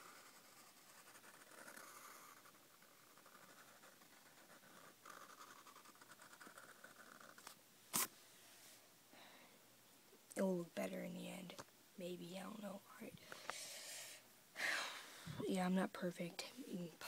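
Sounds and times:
marker scratching on paper: 0.0s - 8.1s.

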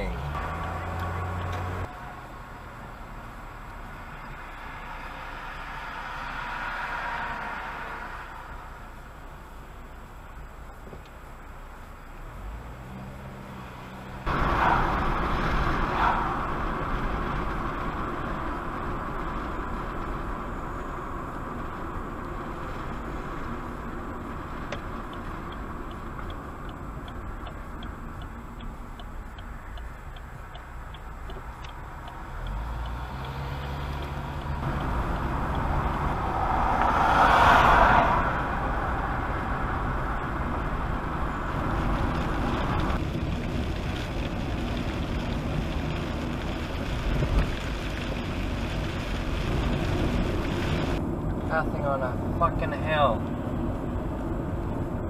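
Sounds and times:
turn signal ticking: 0.0s - 4.4s, 16.5s - 37.0s
car engine and tyre rumble: 0.0s - 55.0s
loud rushing swell: 34.7s - 40.1s.

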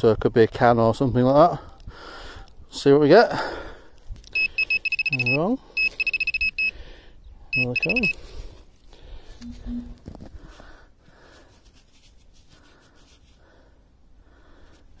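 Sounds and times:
soft breathing: 1.8s - 2.6s, 12.5s - 15.0s
fingers rustling in dry soil: 8.2s - 13.6s.

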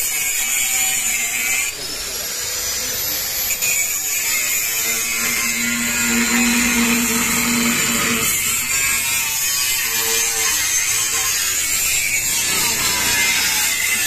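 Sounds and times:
angle grinder grinding steel: 2.8s - 14.0s.

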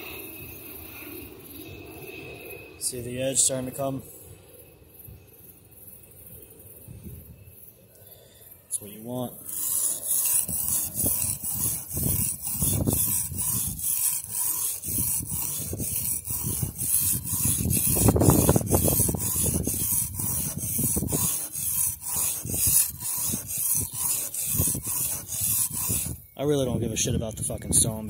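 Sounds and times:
knife scraping on whetstone: 9.3s - 26.3s.

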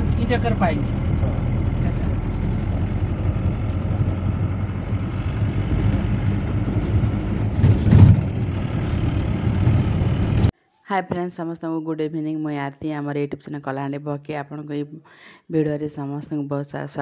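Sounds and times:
vehicle engine and tyre rumble: 0.0s - 10.5s.

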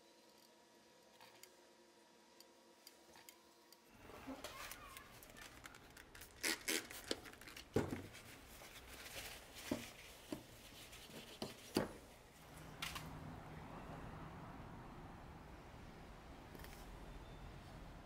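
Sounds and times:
tape peeling and rustling: 4.3s - 11.8s.

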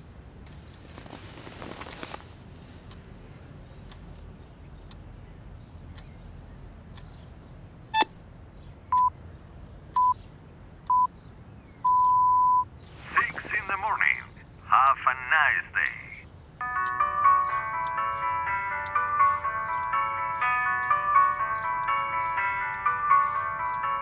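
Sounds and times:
brief rustle: 0.5s - 3.4s
short beeps: 11.9s - 12.7s
alarm clock ticking: 16.6s - 24.0s.

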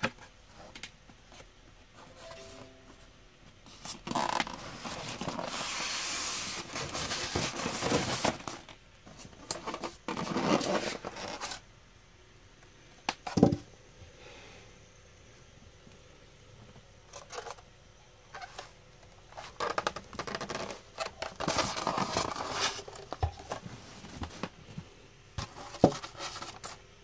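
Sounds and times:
rubbing and scraping of foam packing: 3.8s - 11.6s, 19.3s - 24.7s, 25.4s - 26.8s.

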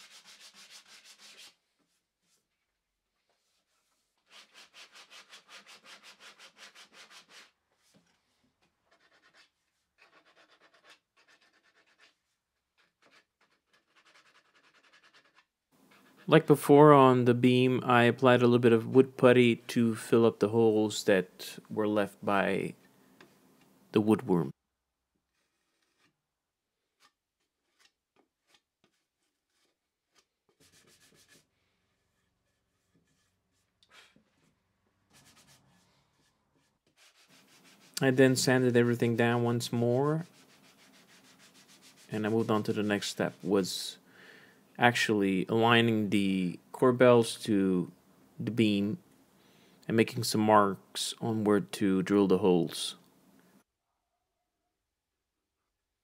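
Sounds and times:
sandpaper sanding wood: 0.0s - 1.6s, 3.7s - 7.6s, 30.5s - 33.6s, 36.9s - 43.5s
putty knife scraping: 25.3s - 26.2s, 26.9s - 38.1s.

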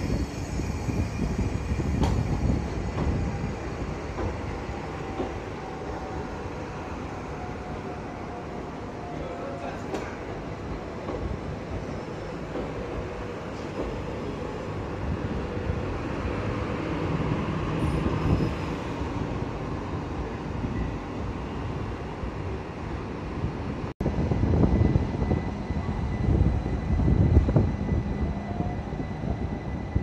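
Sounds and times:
train wheels rumbling: 0.0s - 8.8s.

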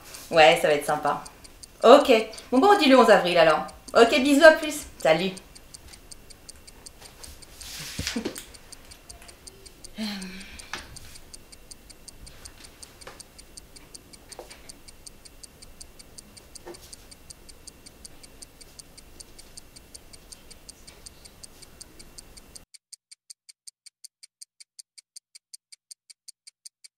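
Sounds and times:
clock ticking: 0.0s - 26.9s.

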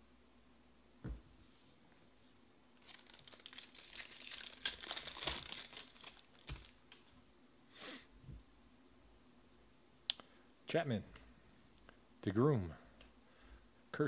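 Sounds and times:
cards rustling: 2.8s - 7.1s
foil wrapper tearing and crinkling: 2.8s - 7.1s.

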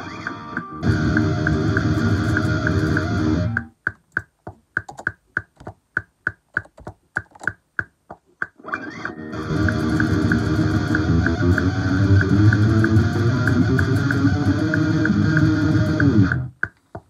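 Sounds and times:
electric guitar playing: 0.0s - 3.7s, 8.6s - 16.5s
quick uneven sharp clicks: 0.1s - 17.0s.

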